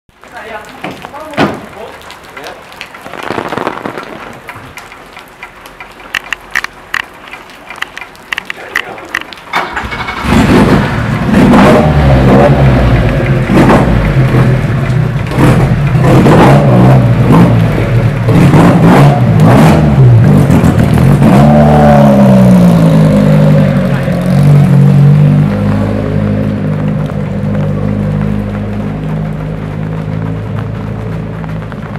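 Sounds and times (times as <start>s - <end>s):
racing engine revving: 9.6s - 31.9s.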